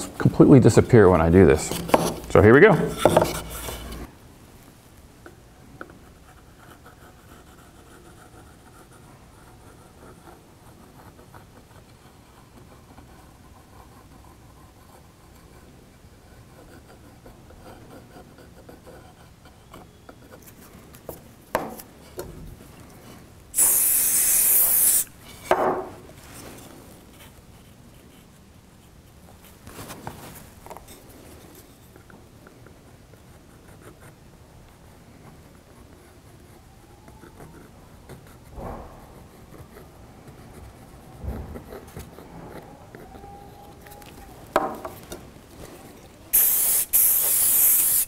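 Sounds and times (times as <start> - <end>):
aerosol can spraying: 23.6 - 25.1, 46.3 - 48.0.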